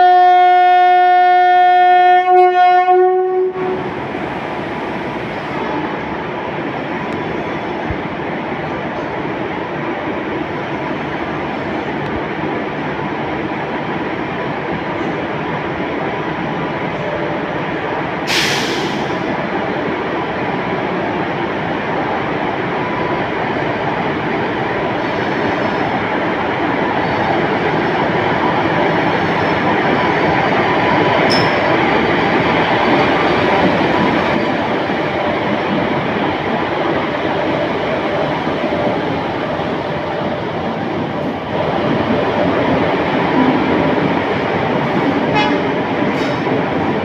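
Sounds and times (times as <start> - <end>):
train rumbling past: 0.0 - 47.0
short hiss burst: 18.3 - 19.2.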